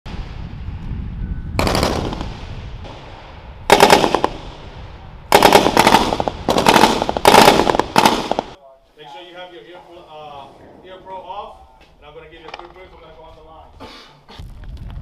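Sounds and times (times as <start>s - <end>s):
gunfire echo: 1.6s - 8.6s.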